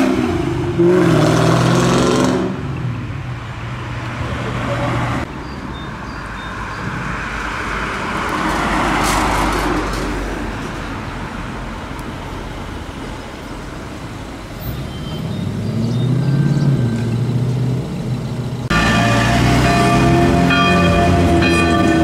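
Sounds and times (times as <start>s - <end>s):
car passing: 14.8s - 22.0s.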